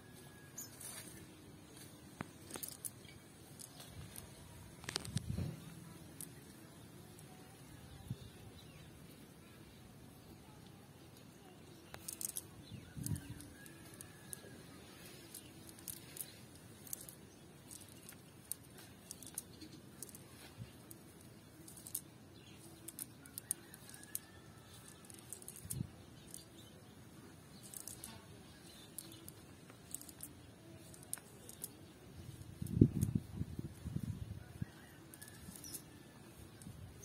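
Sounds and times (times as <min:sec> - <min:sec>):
fishing net rustling and clicking: 0:00.6 - 0:06.4, 0:11.9 - 0:26.7, 0:27.5 - 0:33.8.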